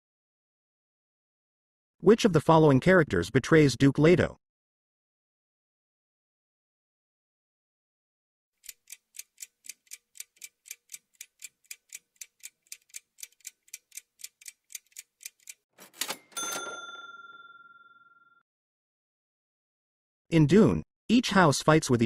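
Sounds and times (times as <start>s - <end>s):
clock-like ticking: 8.6s - 15.7s
bell-like ding: 16.0s - 18.4s.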